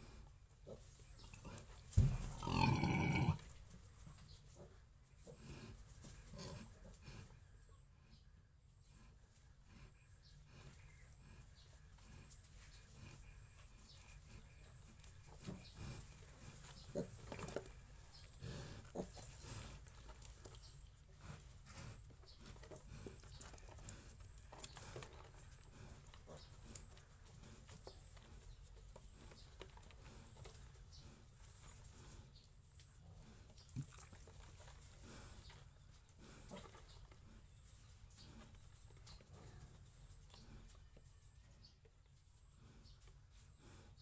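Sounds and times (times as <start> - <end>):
pigs grunting: 0.6 - 3.5, 18.3 - 19.9.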